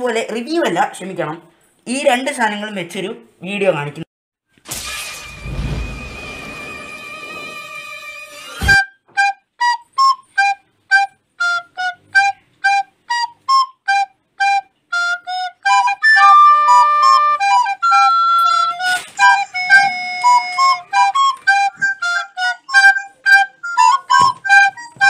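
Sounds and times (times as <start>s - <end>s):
sharp hit: 4.6s - 8.8s
flute melody: 5.2s - 25.0s.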